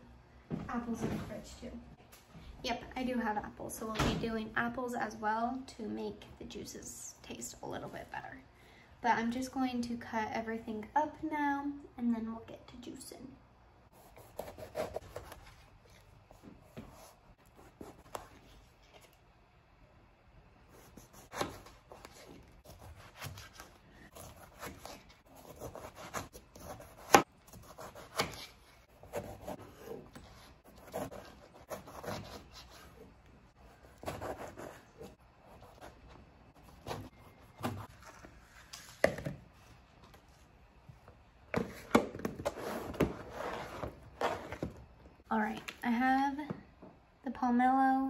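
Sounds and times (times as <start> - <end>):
knife cutting fruit rind: 21.1 - 33.0.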